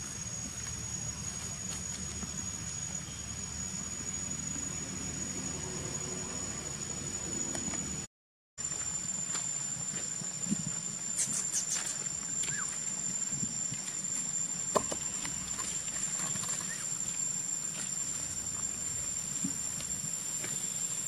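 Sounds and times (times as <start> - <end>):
high-pitched insect drone: 0.0 - 21.0
short chirps: 11.2 - 12.7.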